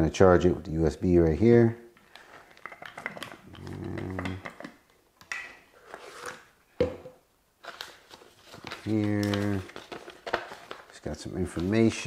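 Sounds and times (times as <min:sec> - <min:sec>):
paper rustle: 0:07.6 - 0:12.0.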